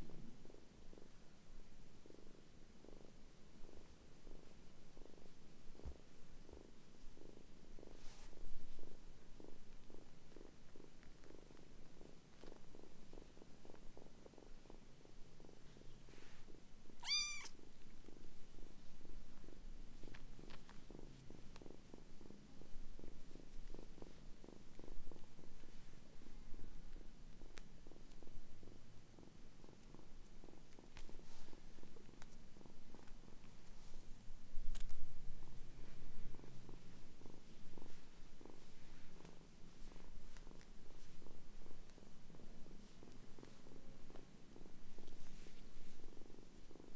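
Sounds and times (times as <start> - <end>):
kitten purring: 0.0 - 46.9
high-pitched kitten mew: 17.0 - 17.5.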